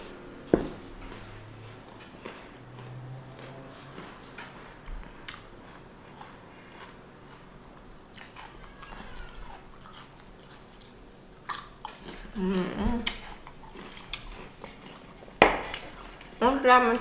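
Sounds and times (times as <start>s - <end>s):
person chewing: 1.0s - 12.4s, 13.0s - 16.3s
person humming: 12.4s - 13.1s.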